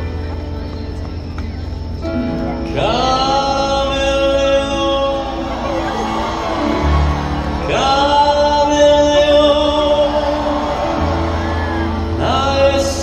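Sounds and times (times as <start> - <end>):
amplified backing music: 0.0 - 13.0
man singing: 2.6 - 13.0.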